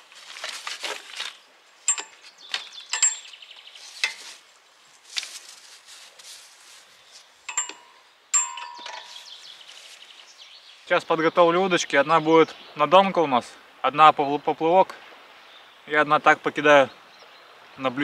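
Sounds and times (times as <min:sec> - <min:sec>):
straps and fabric rustling: 0:00.0 - 0:01.5, 0:03.6 - 0:07.5, 0:08.9 - 0:10.4
sharp metallic clinks: 0:01.9 - 0:02.3, 0:02.9 - 0:03.4, 0:07.5 - 0:09.4.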